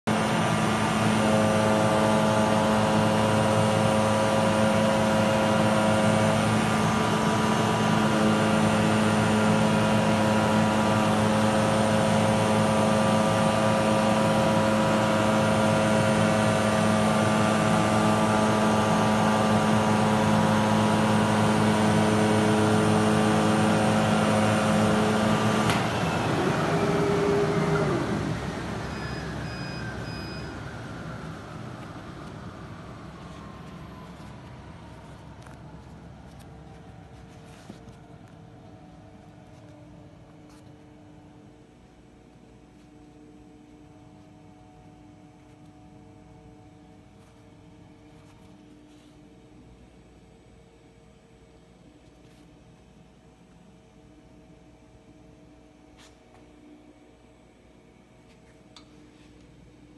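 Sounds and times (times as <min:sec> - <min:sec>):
motor whine spinning down: 0:00.1 - 0:40.6
cutting machine mechanical hum: 0:00.1 - 0:59.9.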